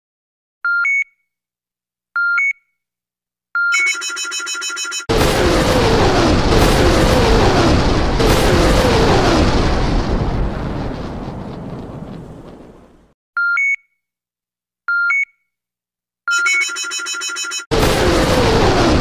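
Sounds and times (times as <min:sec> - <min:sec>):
short electronic beeps: 0:03.6 - 0:05.1, 0:16.3 - 0:17.7
rockets firing with falling whines: 0:05.1 - 0:13.2, 0:17.7 - 0:19.0.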